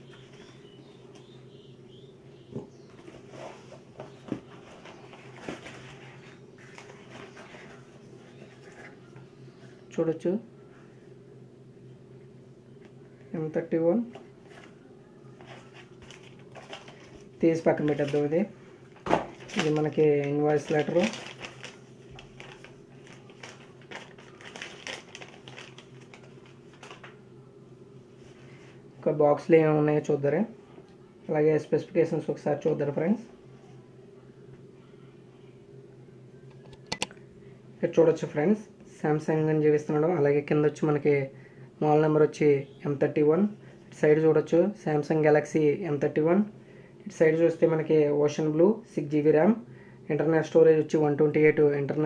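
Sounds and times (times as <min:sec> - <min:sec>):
steady low hum: 0:00.0 - 0:52.0
cardboard flaps rustling and scraping: 0:02.9 - 0:08.9
paper rustling: 0:03.0 - 0:09.0, 0:15.4 - 0:18.4, 0:19.1 - 0:27.2.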